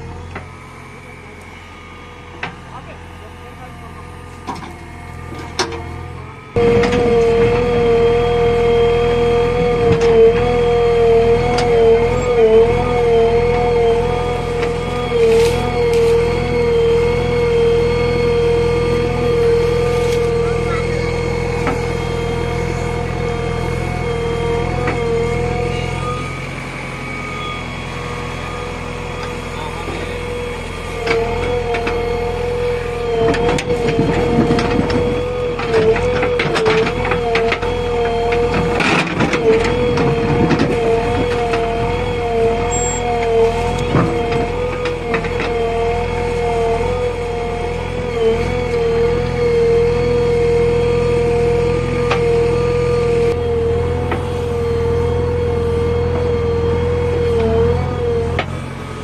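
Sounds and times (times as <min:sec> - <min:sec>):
backhoe engine and hydraulics whine: 0:00.0 - 0:59.0
bucket scraping in soil: 0:15.2 - 0:16.2.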